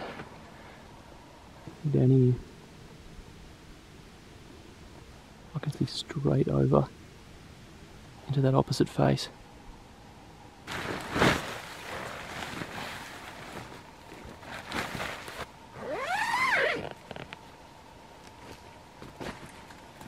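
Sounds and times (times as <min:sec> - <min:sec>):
tent fabric rustling: 0:10.6 - 0:17.4
tent zipper pulled: 0:14.6 - 0:17.3.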